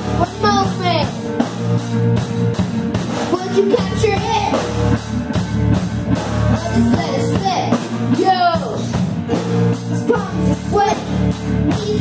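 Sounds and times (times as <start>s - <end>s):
drum kit beat: 0.0s - 12.0s
girl singing: 6.6s - 8.9s, 10.0s - 12.0s.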